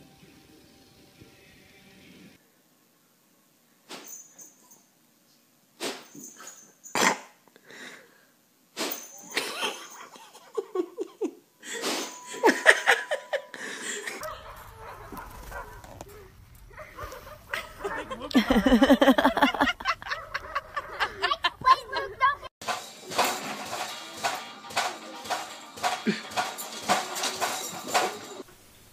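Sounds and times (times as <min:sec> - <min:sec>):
person laughing: 0:09.3 - 0:15.3, 0:16.8 - 0:22.5, 0:26.0 - 0:26.3.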